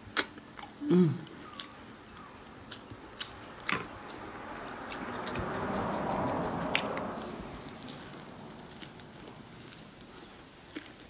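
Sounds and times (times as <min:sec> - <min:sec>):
chewing fried chicken: 0:00.0 - 0:11.0
soft rushing noise: 0:03.4 - 0:10.2.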